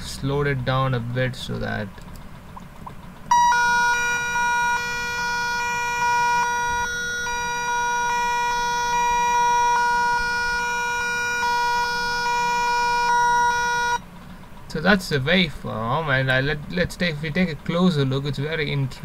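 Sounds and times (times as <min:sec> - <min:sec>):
buzzy electronic data tone: 0:03.3 - 0:14.0.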